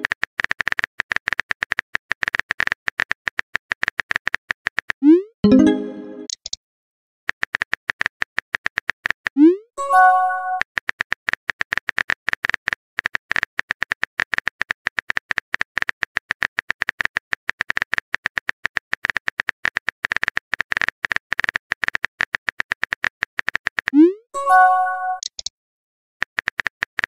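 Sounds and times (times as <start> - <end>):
phone keyboard typing clicks: 25.2 - 25.5.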